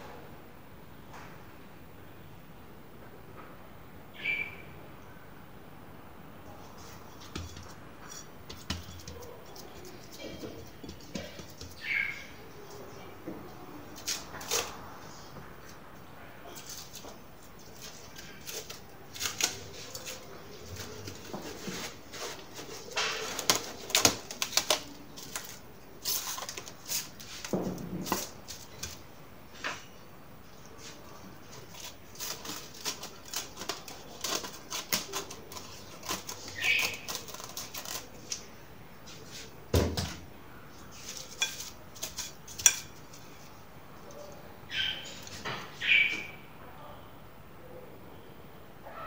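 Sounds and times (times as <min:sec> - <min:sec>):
bird chirping: 0:04.1 - 0:04.8, 0:11.6 - 0:12.6, 0:36.4 - 0:37.2, 0:44.2 - 0:46.5
hand working dough in bowl: 0:06.6 - 0:15.8, 0:16.5 - 0:29.1, 0:30.8 - 0:38.5, 0:40.7 - 0:44.3
cling film crinkling: 0:16.5 - 0:29.1, 0:30.8 - 0:38.5.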